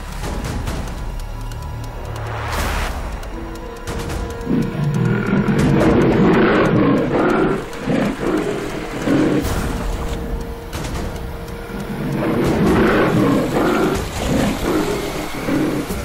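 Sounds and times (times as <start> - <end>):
background music: 0.0 - 16.0
tigers growling: 3.3 - 16.0.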